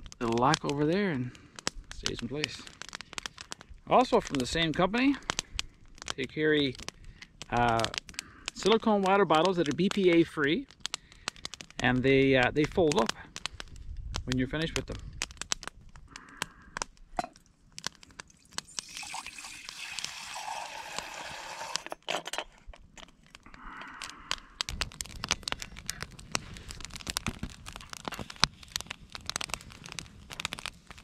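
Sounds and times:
campfire crackling: 0:00.0 - 0:31.0
water pouring into a mug: 0:18.3 - 0:21.9.

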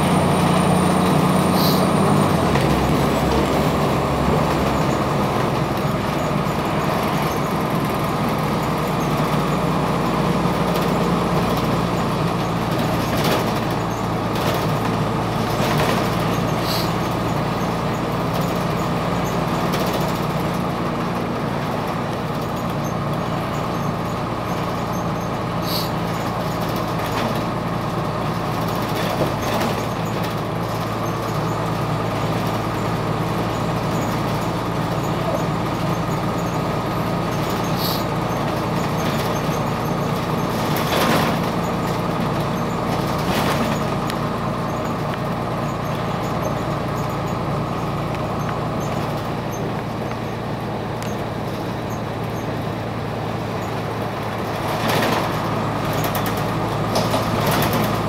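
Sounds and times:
diesel bus engine running: 0:00.0 - 0:58.0
road and interior noise: 0:00.0 - 0:58.0
rattles and clicks: 0:12.3 - 0:16.6, 0:37.2 - 0:50.4, 0:53.6 - 0:58.0.

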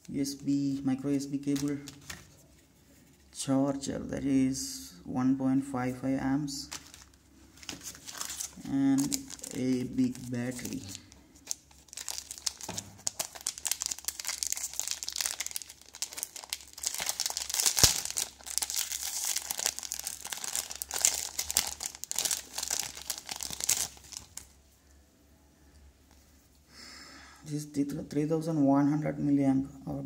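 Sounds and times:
plastic bag crinkling: 0:06.6 - 0:24.6.

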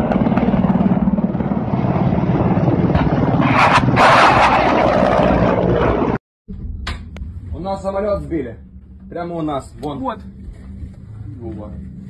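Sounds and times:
helicopter flying low: 0:00.0 - 0:06.2.

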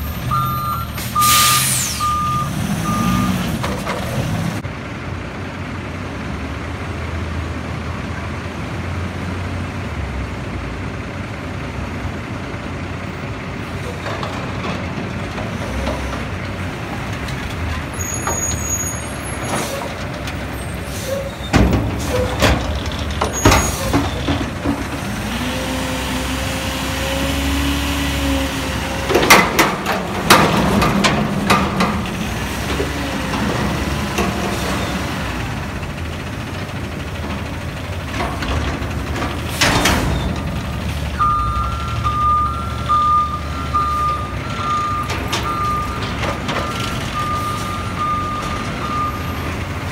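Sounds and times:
garbage truck engine running: 0:10.8 - 0:49.9.

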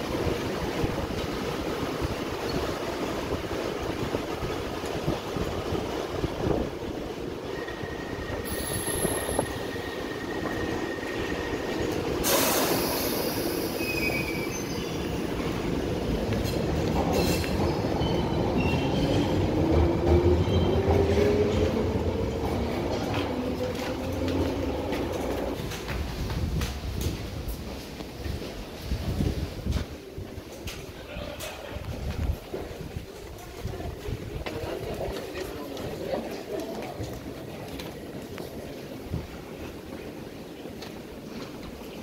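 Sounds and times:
underground train running: 0:00.0 - 0:42.0
sharp hiss: 0:12.2 - 0:13.9.

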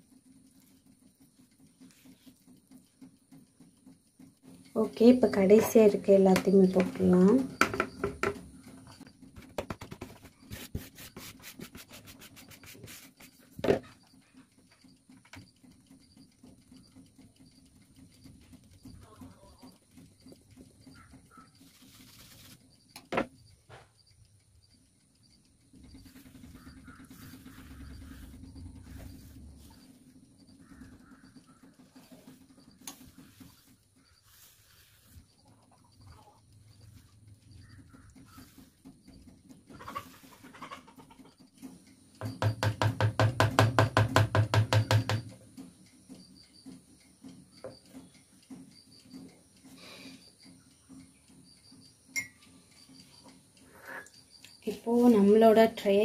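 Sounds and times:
flour sieve shaken and tapped: 0:04.4 - 0:14.0, 0:21.6 - 0:23.3, 0:26.0 - 0:35.4.

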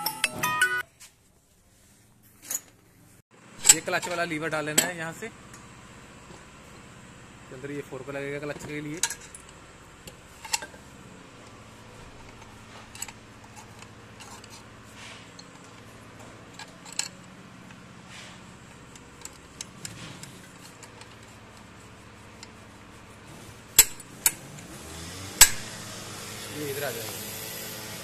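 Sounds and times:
metal parts clinking on housing: 0:08.8 - 0:10.8, 0:12.1 - 0:17.8
sharp metal clacks: 0:23.8 - 0:24.5, 0:25.4 - 0:25.8.

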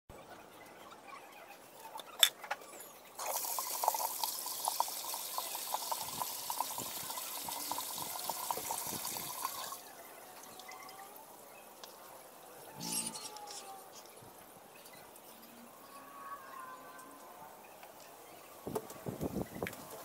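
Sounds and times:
water splashing from drain pipe: 0:03.2 - 0:09.8.

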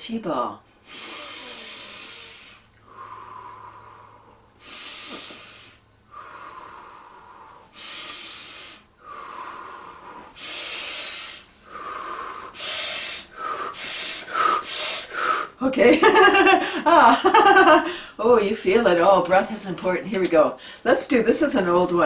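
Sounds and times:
woman breathing deeply: 0:00.8 - 0:15.6, 0:16.2 - 0:18.2.

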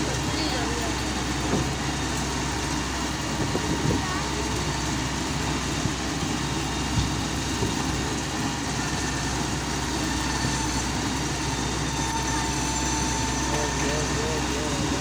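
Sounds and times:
excavator diesel engine running: 0:00.0 - 0:15.0.

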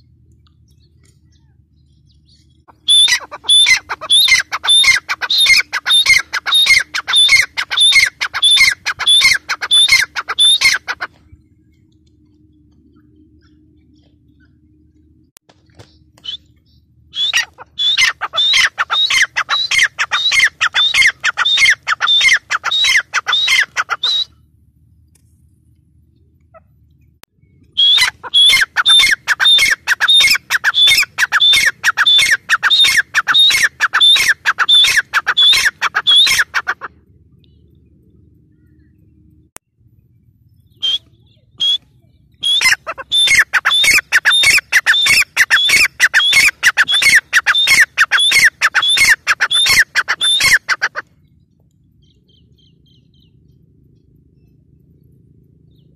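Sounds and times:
bird calling sharp high notes: 0:02.7 - 0:11.2, 0:16.1 - 0:24.4, 0:27.7 - 0:36.9, 0:40.8 - 0:41.8, 0:42.4 - 0:51.0.

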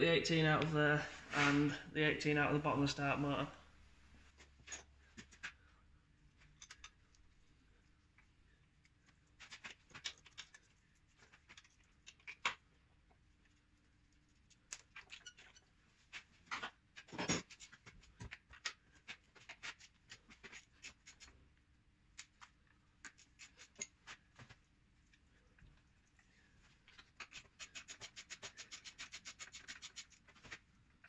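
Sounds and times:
hand tools clicking and scraping: 0:27.2 - 0:30.3.

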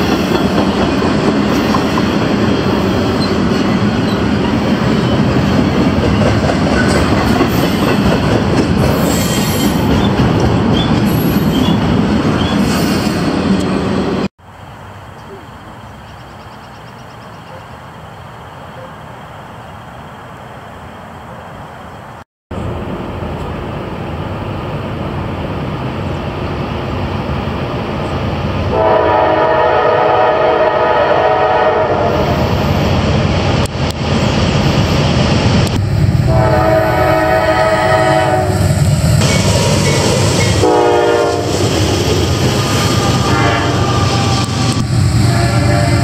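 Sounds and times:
diesel train rumble: 0:00.0 - 0:46.0
locomotive air horn: 0:28.7 - 0:32.4, 0:36.3 - 0:38.6, 0:40.6 - 0:41.6, 0:42.6 - 0:46.0.

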